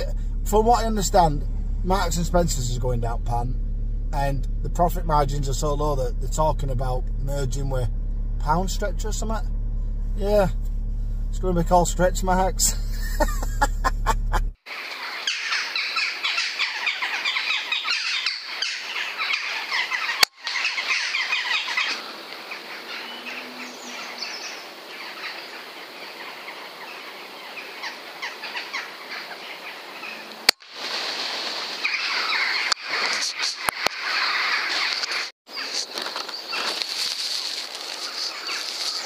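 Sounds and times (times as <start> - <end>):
small birds chirping: 14.7 - 30.6, 31.6 - 39.0.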